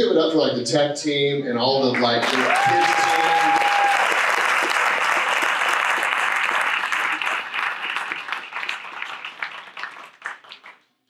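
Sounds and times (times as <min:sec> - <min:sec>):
congregation applauding: 0:01.9 - 0:10.8.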